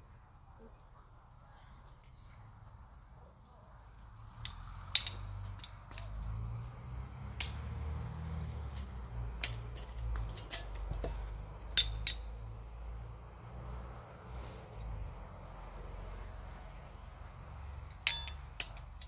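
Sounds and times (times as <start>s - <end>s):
sharp metallic clicks and clinks: 4.0s - 12.4s, 17.8s - 19.0s.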